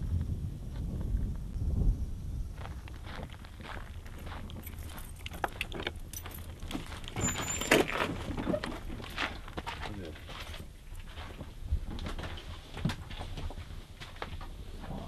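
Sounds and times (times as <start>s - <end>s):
short high squeak: 7.2s - 7.9s.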